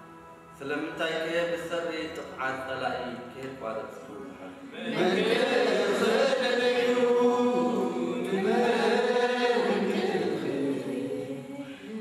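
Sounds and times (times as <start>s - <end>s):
group singing church chant: 4.6s - 12.0s.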